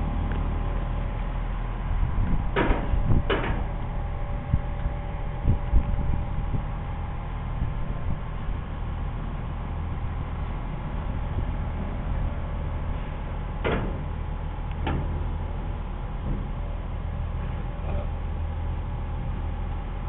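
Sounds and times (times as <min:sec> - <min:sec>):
van engine rumble: 0:00.0 - 0:20.0
wheels clanking on ramp: 0:02.2 - 0:05.6, 0:12.9 - 0:18.1.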